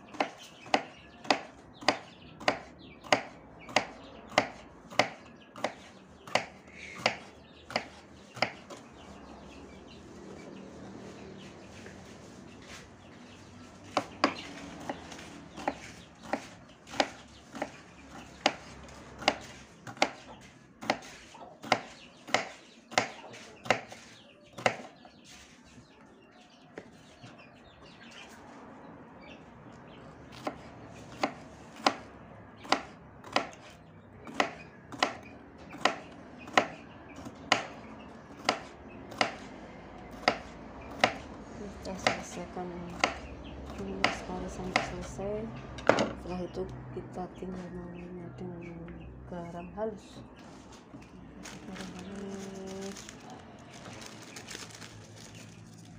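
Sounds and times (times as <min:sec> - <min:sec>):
knife chopping on wooden board: 0:00.1 - 0:08.9, 0:13.9 - 0:25.0, 0:30.3 - 0:39.5, 0:40.1 - 0:41.3, 0:41.9 - 0:45.1.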